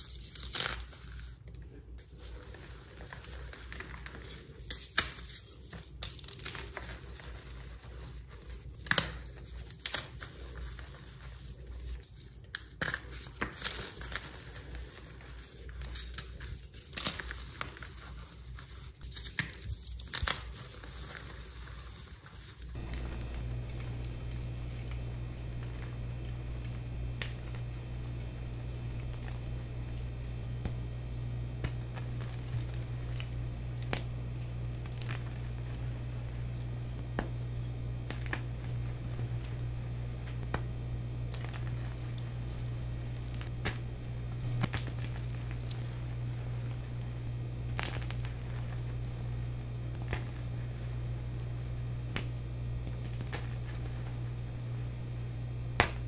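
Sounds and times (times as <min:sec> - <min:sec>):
chalk crunching and crumbling: 0:12.8 - 0:56.0
steady low hum: 0:22.7 - 0:56.0
chalk pieces snapping: 0:22.8 - 0:49.1, 0:55.8 - 0:56.0.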